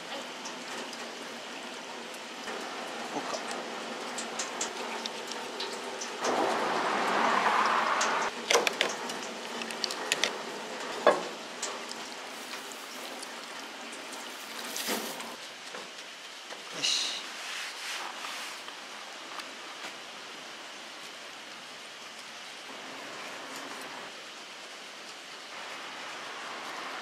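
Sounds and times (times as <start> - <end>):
sharp clicks and knocks: 8.5 - 10.4
water splashing: 12.0 - 15.4.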